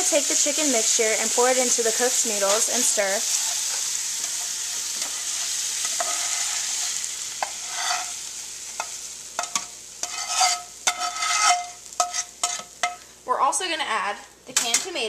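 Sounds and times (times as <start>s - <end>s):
chicken and onions sizzling: 0.0s - 15.0s
spatula scraping pan: 1.8s - 13.0s.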